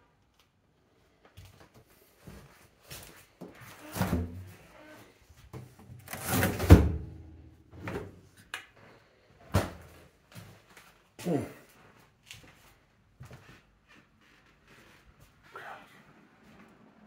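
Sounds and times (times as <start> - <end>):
refrigerator door shutting: 6.1 - 7.3.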